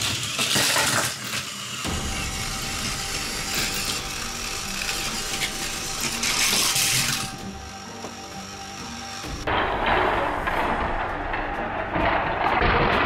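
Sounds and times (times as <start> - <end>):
toy train motor whirring: 0.0 - 9.5.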